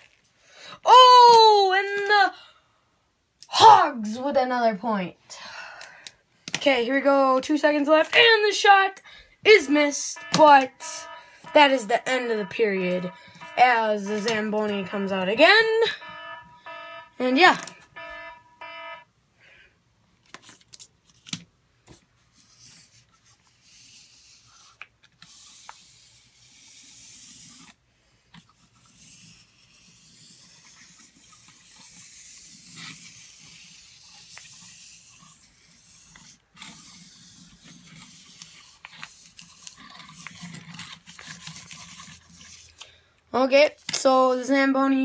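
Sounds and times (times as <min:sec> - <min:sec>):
toy car rolling on desk: 0:28.6 - 0:42.8.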